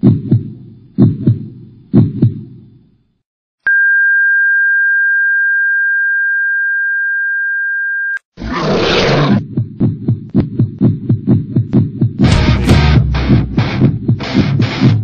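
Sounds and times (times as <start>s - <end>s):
heartbeat thump: 0.0s - 2.7s, 9.4s - 15.0s.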